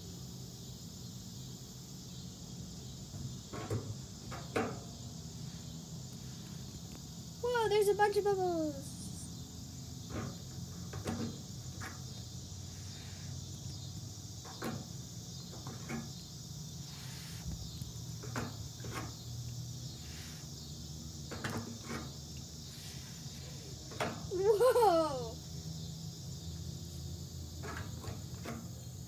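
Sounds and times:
insects chorus: 0:00.0 - 0:29.0.

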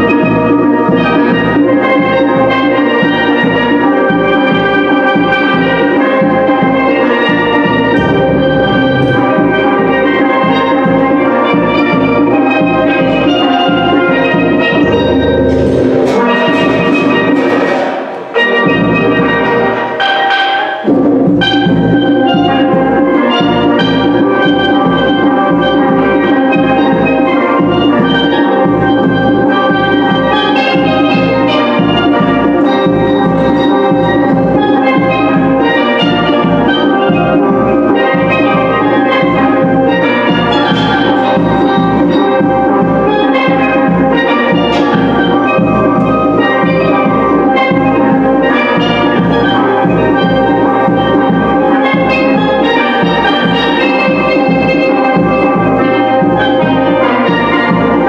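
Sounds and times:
steel pans ringing: 0:00.0 - 0:58.0
steady drum beat: 0:04.2 - 0:13.2, 0:14.4 - 0:18.4, 0:25.4 - 0:58.0.

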